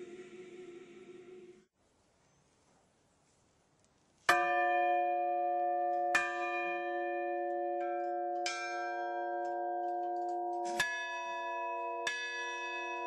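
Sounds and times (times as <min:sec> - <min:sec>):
church bells ringing: 0:04.3 - 0:13.0.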